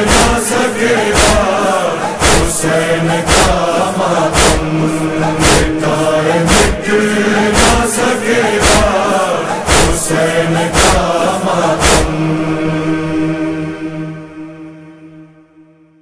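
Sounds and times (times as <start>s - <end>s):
heavy beat: 0.0s - 12.2s
voices chanting: 0.0s - 14.2s
steady low hum: 0.0s - 15.6s.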